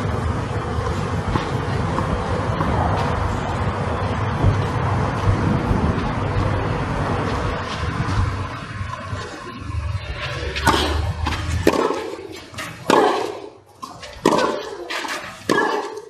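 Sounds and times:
low rumble: 0.0s - 14.2s
tennis ball hit with racquets: 10.3s - 16.0s.

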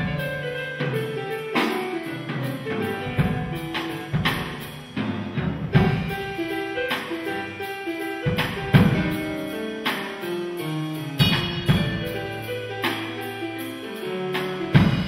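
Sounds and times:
swing jazz piano: 0.0s - 15.0s
bass drum accents: 1.8s - 7.6s, 8.2s - 10.3s, 11.2s - 13.7s, 14.4s - 15.0s.

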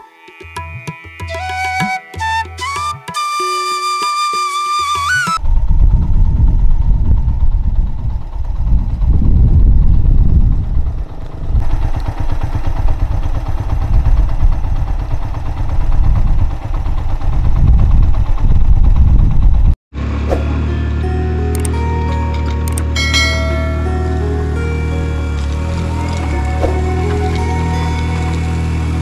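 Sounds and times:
flute music: 0.8s - 5.5s, 20.3s - 29.0s
motorcycle engine rumble: 5.4s - 29.0s.

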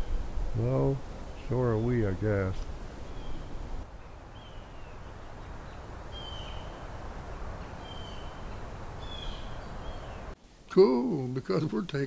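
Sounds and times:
low outdoor rumble: 0.0s - 10.6s
tree frogs calling: 1.4s - 10.4s.

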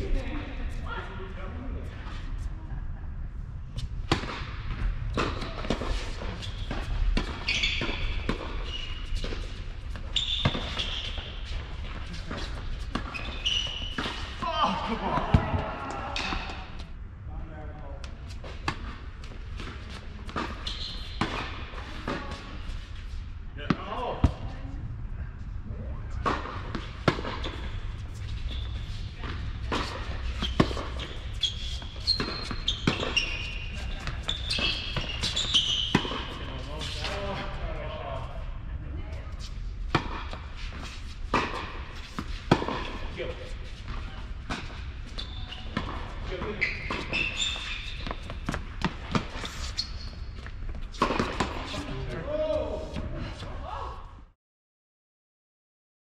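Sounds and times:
tennis balls struck by racquets: 4.0s - 9.6s, 18.5s - 22.5s, 26.2s - 27.7s, 29.2s - 33.3s, 39.9s - 40.5s, 41.3s - 44.9s, 50.9s - 51.9s
sneakers squeaking on court: 5.1s - 14.7s, 18.6s - 22.8s, 26.6s - 37.4s, 40.8s - 52.0s.

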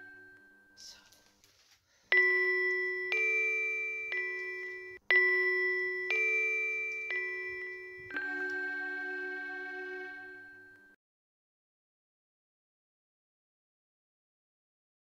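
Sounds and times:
bell-like mallet notes: 0.0s - 1.0s, 2.1s - 11.0s.

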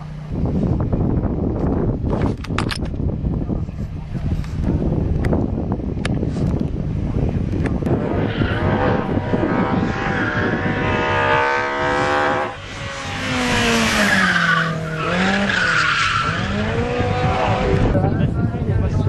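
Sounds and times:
race car engine revving: 7.0s - 18.3s.

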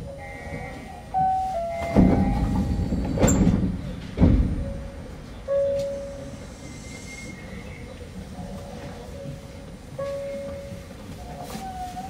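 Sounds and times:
monorail cabin rumble: 0.0s - 12.0s
heavy thuds: 1.8s - 6.0s.

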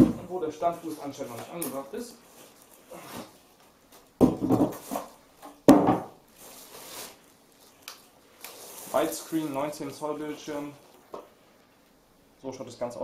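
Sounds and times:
plastic bag rustling: 0.0s - 5.4s, 6.2s - 11.0s
polystyrene scraping: 0.5s - 3.5s, 6.3s - 10.8s
packing knocks: 4.2s - 6.2s.

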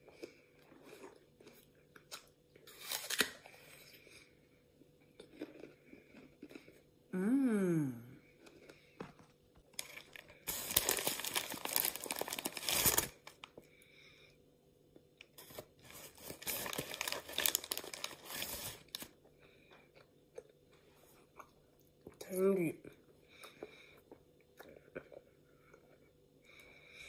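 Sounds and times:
plastic packaging crinkling: 9.8s - 13.5s, 15.4s - 19.2s.

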